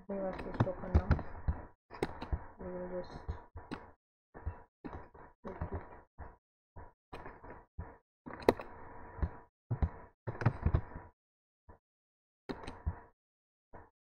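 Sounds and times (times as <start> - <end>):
faint hum: 0.0 - 8.0
computer keyboard and mouse clicks: 0.2 - 1.2, 2.0 - 2.4, 8.3 - 8.7, 9.8 - 10.9, 12.5 - 12.9.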